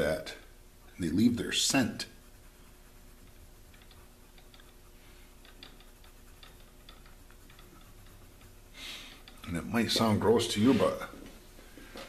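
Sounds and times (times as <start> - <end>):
pencil scratching on paper: 5.0 - 11.1.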